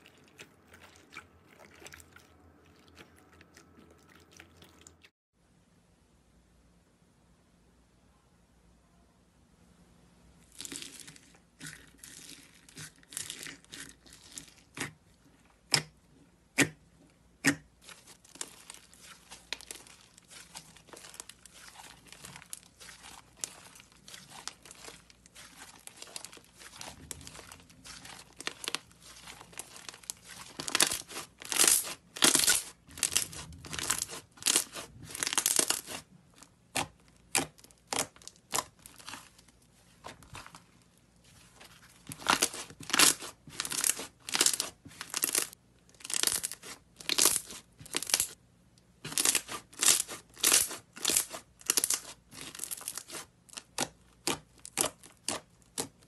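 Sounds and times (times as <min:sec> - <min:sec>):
slime crackling and tearing: 0:17.4 - 0:40.6, 0:41.6 - 0:48.4, 0:49.0 - 0:56.0.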